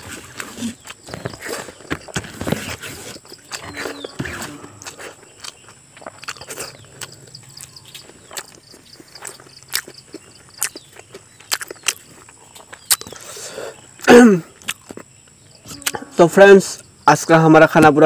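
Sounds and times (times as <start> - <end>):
wet lip smacks and mouth clicks: 14.6 - 15.1.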